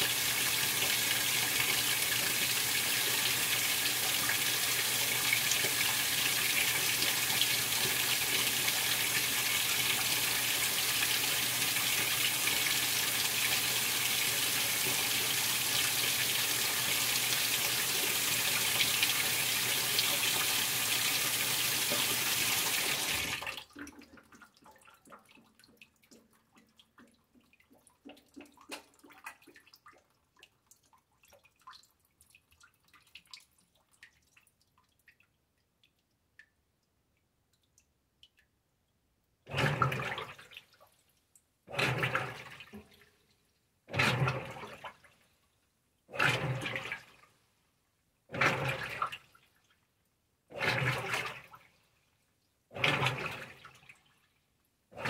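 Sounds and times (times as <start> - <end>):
water trickling into washer: 39.5 - 41.1, 41.7 - 43.2, 43.9 - 45.1, 46.1 - 47.2, 48.3 - 49.8.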